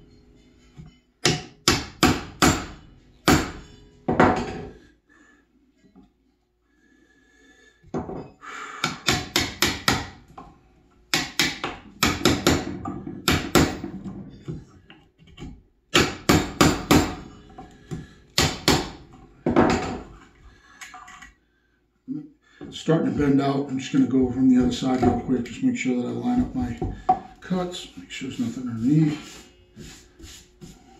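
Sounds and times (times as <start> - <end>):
hammer striking chisel: 1.2 - 4.7, 8.8 - 10.2, 11.1 - 14.1, 15.4 - 20.1.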